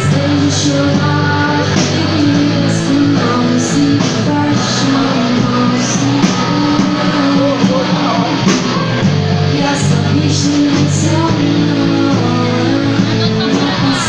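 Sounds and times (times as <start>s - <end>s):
drum kit: 0.0s - 14.0s
electric guitars: 0.0s - 14.0s
woman singing into a microphone: 0.0s - 14.0s.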